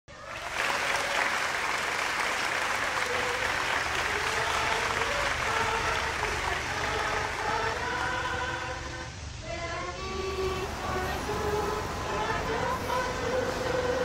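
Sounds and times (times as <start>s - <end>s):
audience applauding: 0.1s - 8.6s.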